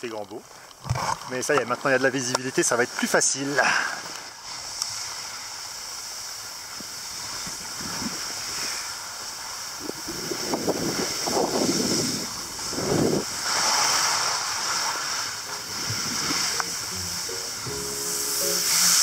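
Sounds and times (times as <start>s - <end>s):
wind buffeting microphone: 9.8s - 13.5s, 15.7s - 16.6s.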